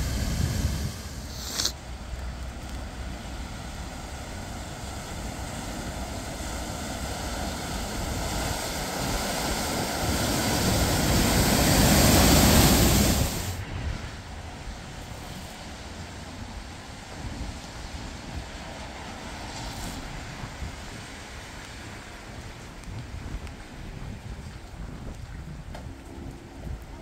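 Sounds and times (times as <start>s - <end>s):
car driving through floodwater: 0.0s - 13.6s.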